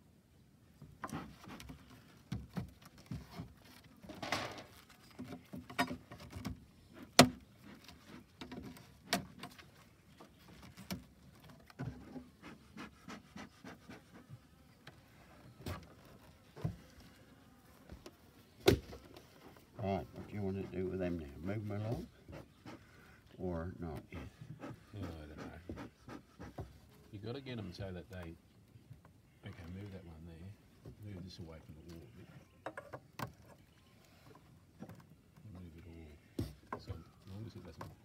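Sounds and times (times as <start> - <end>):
hive tool knocking and scraping: 17.9 - 21.0.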